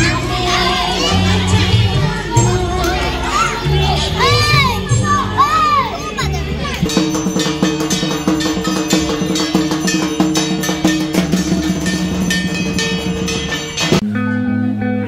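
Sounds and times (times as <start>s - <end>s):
rapid drumming with bells: 0.0s - 14.0s
sustained ringing tones: 6.9s - 14.0s
guitar background music: 13.9s - 15.0s.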